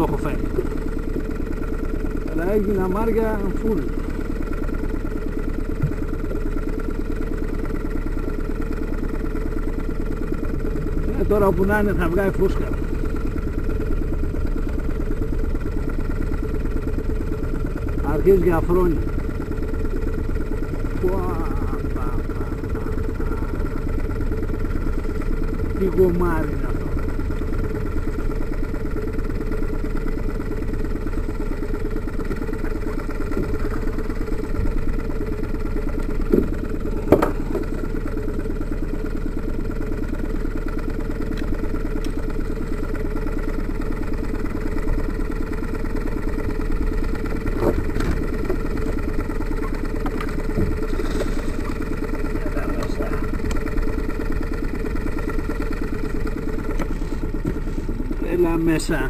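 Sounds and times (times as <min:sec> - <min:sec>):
outboard motor idling: 0:00.0 - 0:59.0
sharp knocks: 0:36.3 - 0:37.6.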